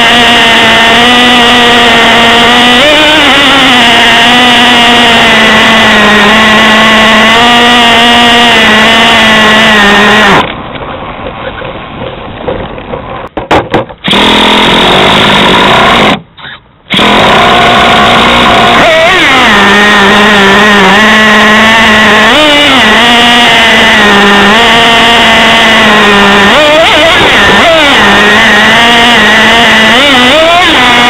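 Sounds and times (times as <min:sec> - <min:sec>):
model truck engine running hard: 0:00.0 - 0:10.5, 0:14.0 - 0:16.2, 0:16.9 - 0:31.0.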